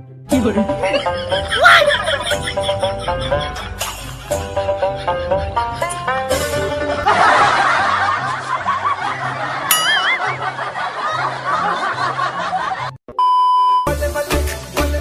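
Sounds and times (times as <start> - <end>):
canned crowd laughter: 0.8 - 13.0
wobbling comic whistle effect: 9.7 - 10.4.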